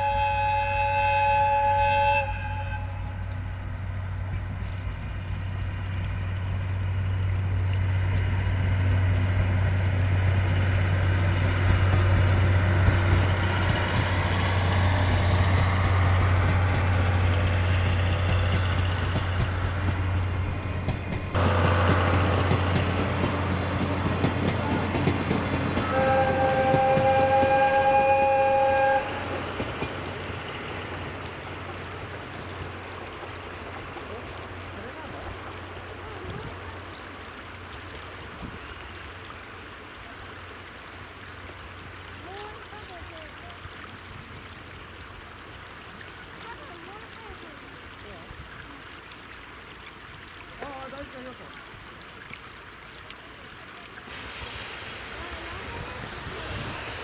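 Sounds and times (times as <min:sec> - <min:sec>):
two-tone locomotive horn: 0:00.0 - 0:03.3, 0:25.8 - 0:29.5
train coaches rumbling past: 0:00.0 - 0:36.9, 0:54.0 - 0:57.0
diesel engine low drone: 0:02.8 - 0:25.8.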